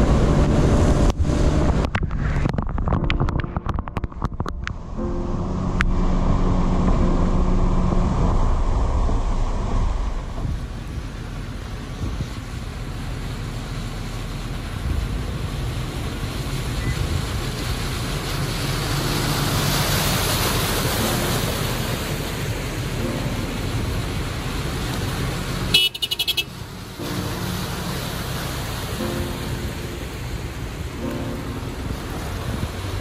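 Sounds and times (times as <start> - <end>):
rushing noise: 0.0 - 13.2, 14.0 - 33.0
engine low rumble: 0.0 - 33.0
car horn toot: 25.7 - 26.6.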